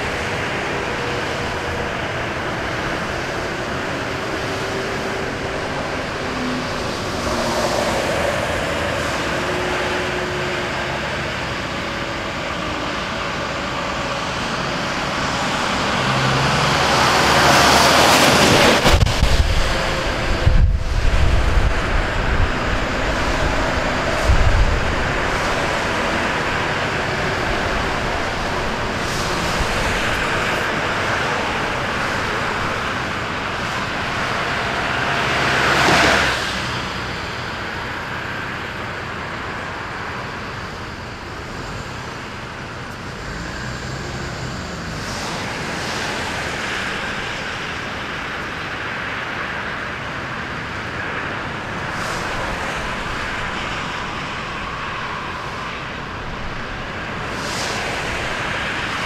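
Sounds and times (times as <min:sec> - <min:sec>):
slow-moving tractors and cars: 0:00.0 - 0:59.0
vehicle passing close: 0:14.2 - 0:37.6.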